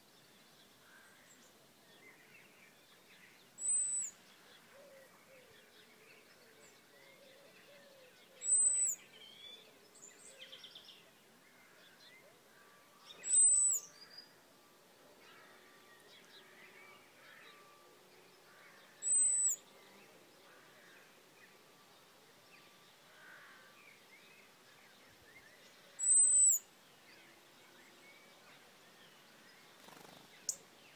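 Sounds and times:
faint birdsong: 0:00.0 - 0:30.9
robin high thin calls: 0:08.4 - 0:09.0, 0:19.0 - 0:19.7, 0:26.0 - 0:26.6.

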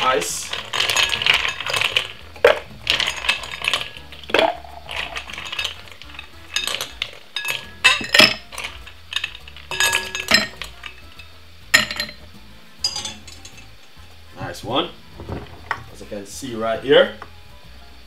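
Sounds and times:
ice cubes clinking against glass: 0:00.0 - 0:12.2, 0:12.8 - 0:13.8.

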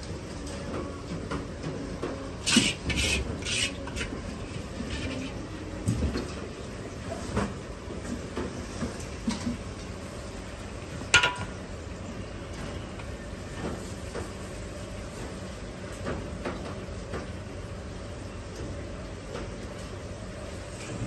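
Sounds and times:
kitchen rumble: 0:00.6 - 0:10.0.

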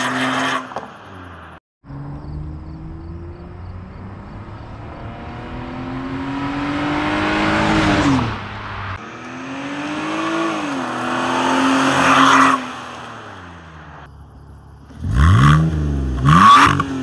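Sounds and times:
car accelerating past: 0:01.9 - 0:14.1.

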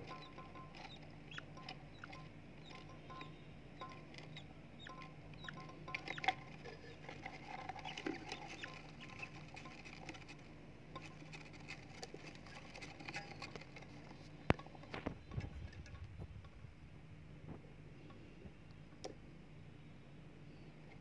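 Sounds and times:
chicks peeping: 0:00.0 - 0:16.1.

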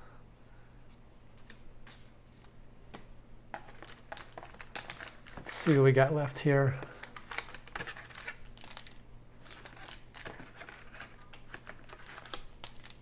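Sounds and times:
steady low hum: 0:00.0 - 0:13.0
foil wrappers crinkling: 0:03.5 - 0:13.0.

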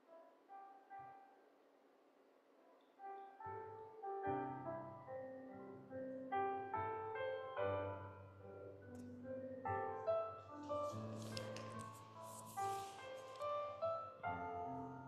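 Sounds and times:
soft piano music: 0:00.0 - 0:01.6, 0:02.6 - 0:15.0.

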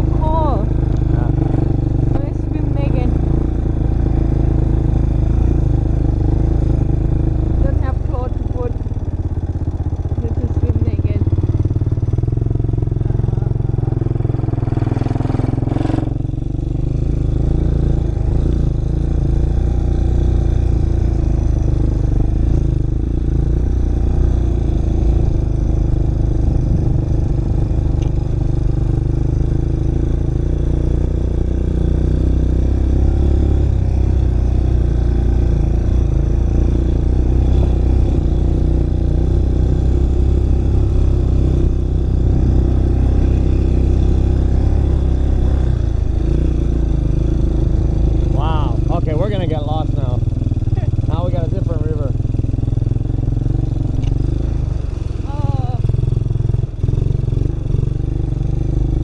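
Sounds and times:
atv engine running: 0:00.0 - 0:59.0.

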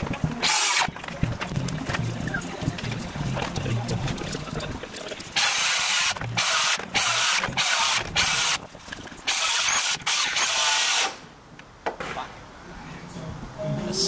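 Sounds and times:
electric planer cutting wood: 0:00.4 - 0:00.9.

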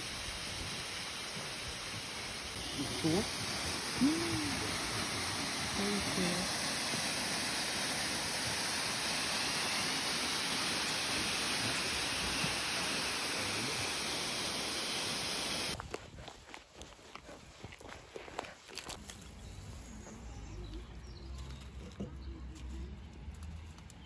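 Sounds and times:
waterfall pouring into pool: 0:00.0 - 0:15.8.

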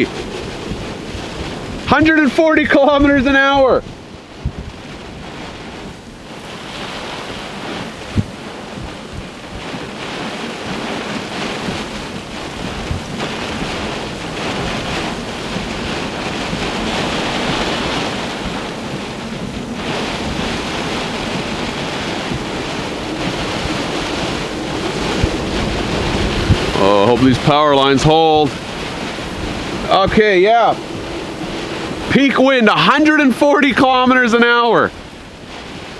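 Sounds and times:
strong wind buffeting microphone: 0:00.0 - 0:35.9.

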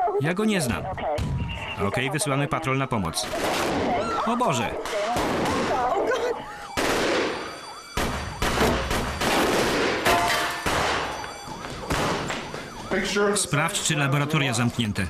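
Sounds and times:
faint siren wailing: 0:00.0 - 0:15.0
rifle shots echoing: 0:03.2 - 0:12.8.

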